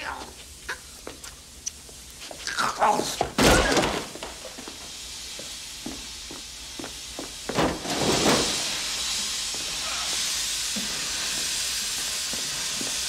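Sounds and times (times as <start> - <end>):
vapour hissing out: 3.9 - 13.0.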